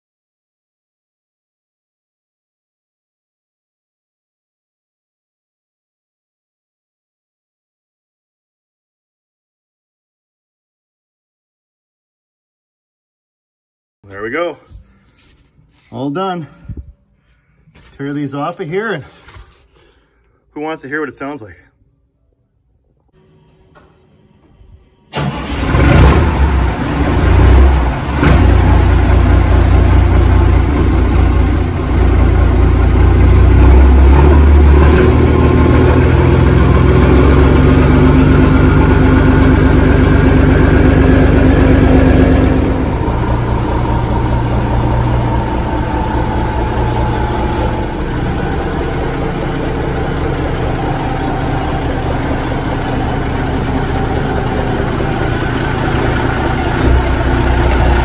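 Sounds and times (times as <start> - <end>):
diesel truck engine starting and idling: 24.6 - 58.0.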